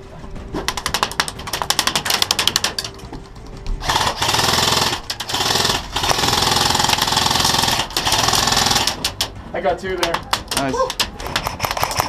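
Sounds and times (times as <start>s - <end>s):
airsoft rifle firing full auto: 3.8s - 9.2s.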